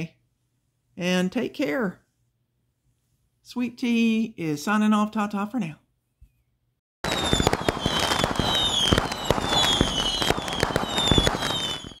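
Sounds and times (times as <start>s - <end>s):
fireworks crackling and popping: 7.0s - 12.0s
high falling whistles: 7.0s - 12.0s.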